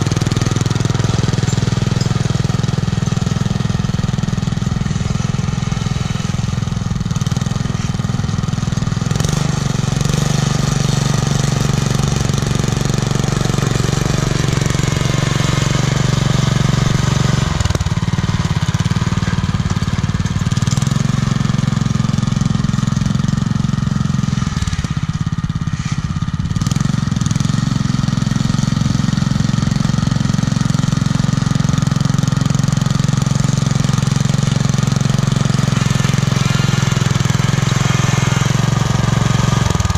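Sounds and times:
small tractor engine running: 0:00.0 - 0:39.9.

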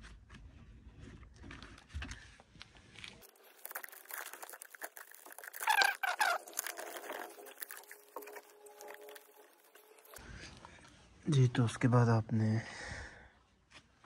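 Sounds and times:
plastic sheet crinkling: 0:02.9 - 0:10.2
high squeaky chirps: 0:03.3 - 0:10.2.

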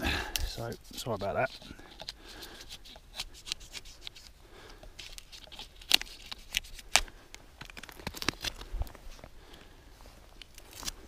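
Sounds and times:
knife scraping bark off log: 0:00.6 - 0:04.3.

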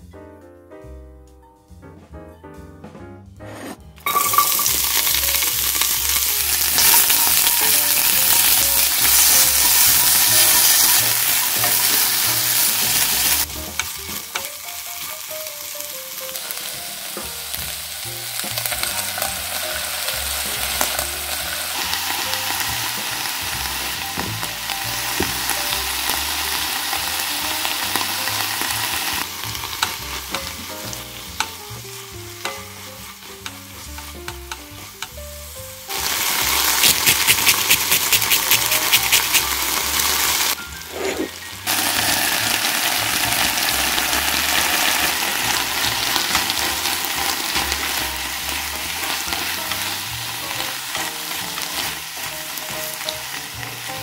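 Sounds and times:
vegetables sizzling in oil: 0:04.0 - 0:54.0
spatula stirring in pan: 0:36.6 - 0:39.5.

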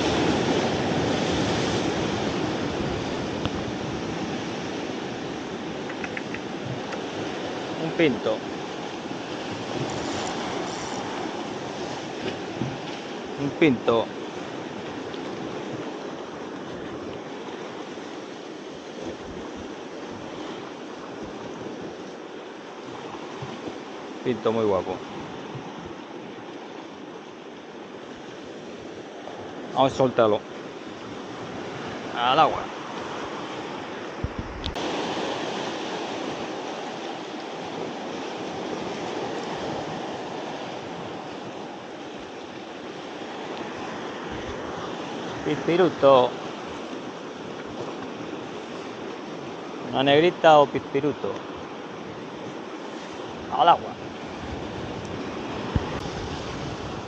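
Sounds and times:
wind buffeting microphone: 0:00.0 - 0:07.8, 0:08.4 - 0:13.4, 0:14.2 - 0:24.2, 0:32.7 - 0:45.6, 0:51.5 - 0:57.0
sea surf washing: 0:00.0 - 0:57.0.

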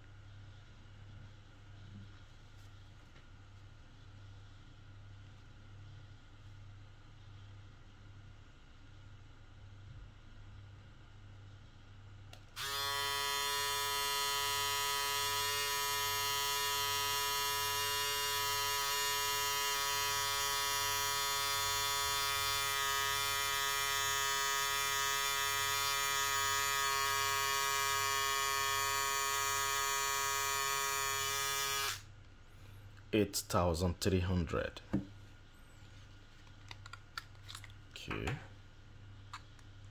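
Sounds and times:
electric shaver buzzing: 0:12.6 - 0:32.0.

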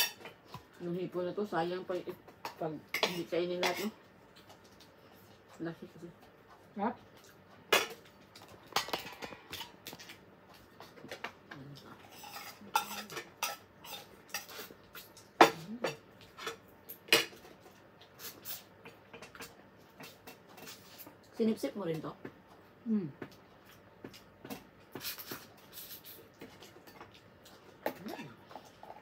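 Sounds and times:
cutlery clinking on plates: 0:12.0 - 0:14.6.

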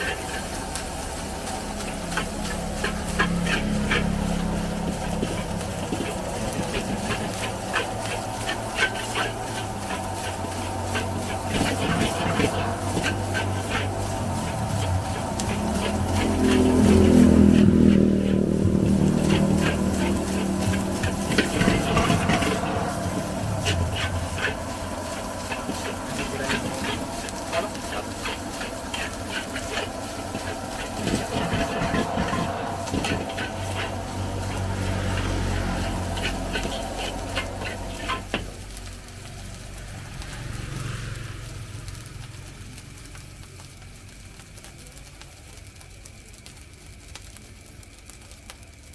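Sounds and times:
metal spatula scraping a wok: 0:00.0 - 0:38.8
steady sizzling hiss: 0:00.0 - 0:48.9
low hum: 0:01.1 - 0:38.3.

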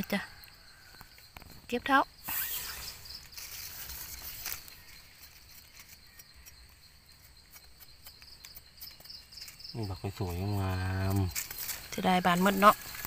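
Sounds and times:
insects chirping: 0:00.0 - 0:13.0
rustling and scraping: 0:02.3 - 0:09.7, 0:11.0 - 0:13.0.

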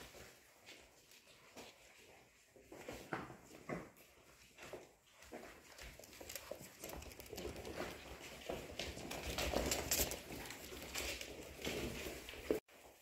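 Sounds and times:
claws pattering on hard floor: 0:04.5 - 0:13.0.

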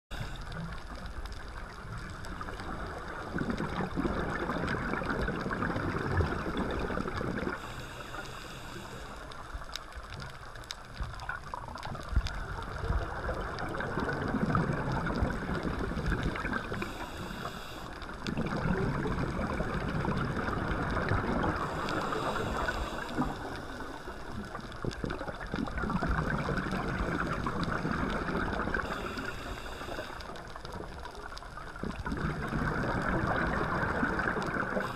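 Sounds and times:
regulator inhalation hiss: 0:07.5 - 0:09.6, 0:16.7 - 0:18.1, 0:21.6 - 0:24.3, 0:28.8 - 0:30.4
bubbling exhalations underwater: 0:18.3 - 0:21.8, 0:31.8 - 0:34.9.

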